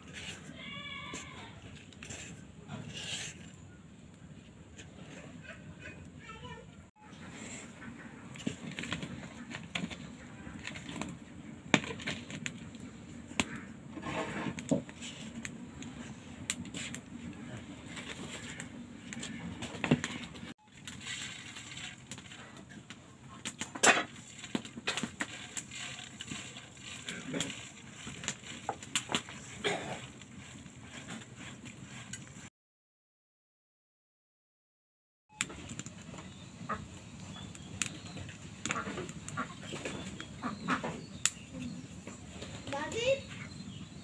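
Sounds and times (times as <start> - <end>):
flour rustling: 20.6 - 23.4, 24.1 - 32.5.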